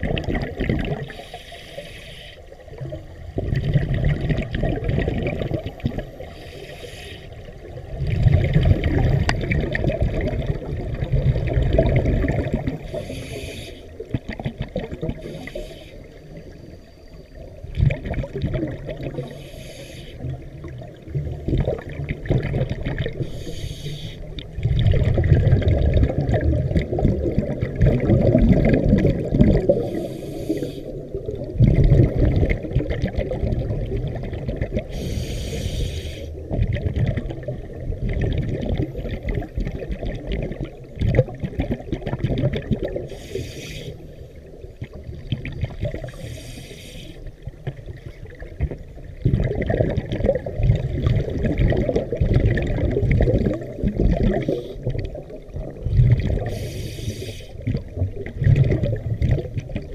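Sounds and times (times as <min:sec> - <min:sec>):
exhaled bubbles rumbling: 0:00.0 - 0:01.4, 0:02.6 - 0:59.9
regulator inhalation hiss: 0:01.1 - 0:02.5, 0:06.2 - 0:07.5, 0:12.9 - 0:14.0, 0:15.2 - 0:16.2, 0:19.2 - 0:20.3, 0:23.2 - 0:24.4, 0:29.7 - 0:31.0, 0:34.9 - 0:36.4, 0:43.1 - 0:44.2, 0:46.0 - 0:47.4, 0:56.5 - 0:57.6.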